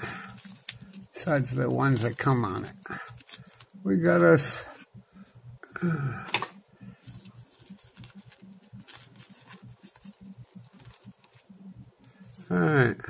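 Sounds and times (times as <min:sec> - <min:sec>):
plastic bag crinkling: 0:00.0 - 0:03.8.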